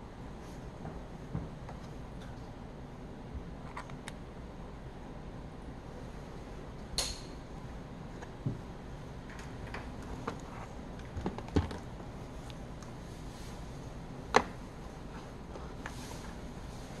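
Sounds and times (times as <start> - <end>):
sharp click: 7.0 - 7.4.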